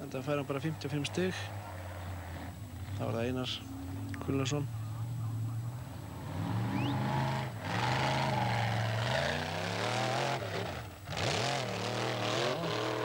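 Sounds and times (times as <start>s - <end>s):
tyres churning dirt: 5.7s - 13.0s
buggy engine revving hard: 5.8s - 13.0s.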